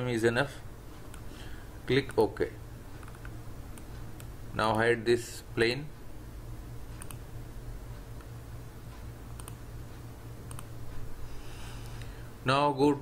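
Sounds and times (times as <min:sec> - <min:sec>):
steady low hum: 0:00.0 - 0:13.0
computer mouse clicking: 0:01.1 - 0:01.3, 0:02.0 - 0:02.3, 0:03.0 - 0:04.3, 0:07.0 - 0:07.2, 0:09.3 - 0:09.6, 0:10.4 - 0:10.7.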